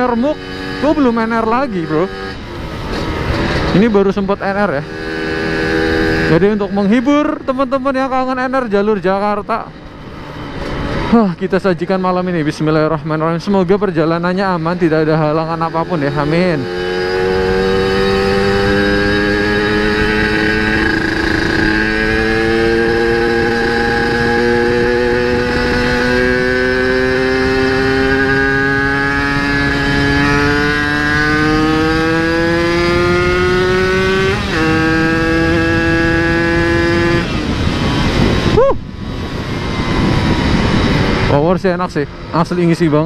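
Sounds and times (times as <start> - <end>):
two-stroke motorcycle engine: 0.0 - 7.0, 14.2 - 38.5.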